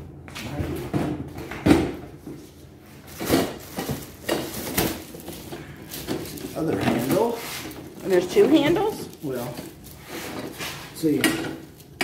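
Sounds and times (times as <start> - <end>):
plastic wrapping rustling: 2.6 - 12.0
cardboard scraping: 3.2 - 11.1.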